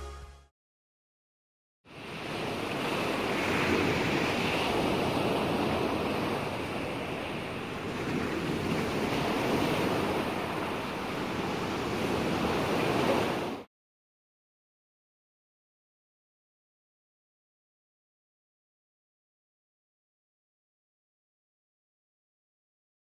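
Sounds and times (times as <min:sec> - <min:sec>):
small waves washing onto sand: 0:01.9 - 0:13.7
wind: 0:01.9 - 0:13.7.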